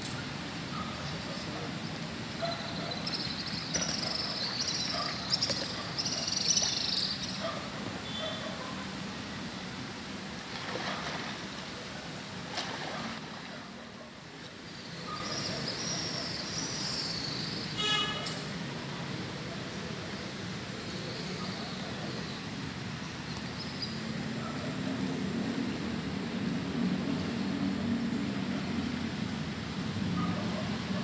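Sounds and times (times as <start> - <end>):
river water washing: 9.0 - 14.0
kayak paddle splashing: 10.5 - 11.6, 12.5 - 13.7.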